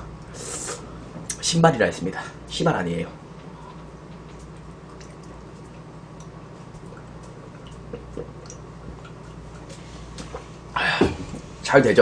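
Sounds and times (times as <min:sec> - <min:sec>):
steady low hum: 0:00.0 - 0:12.0
person gulping a drink: 0:04.1 - 0:09.7
swallowing and mouth clicks: 0:04.1 - 0:10.4.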